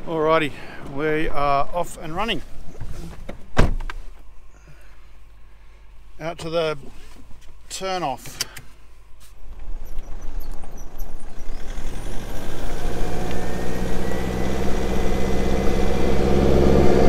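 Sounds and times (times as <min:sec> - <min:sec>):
vehicle engine and tyre noise: 0:05.2 - 0:17.0.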